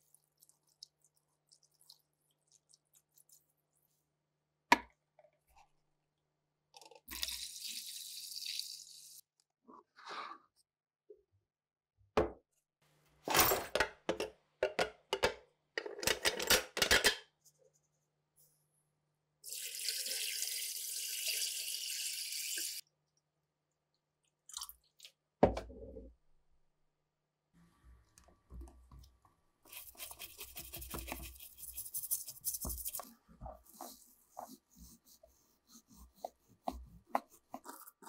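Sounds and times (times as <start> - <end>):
brush scrubbing in liquid: 0.0 - 4.2, 29.7 - 38.0.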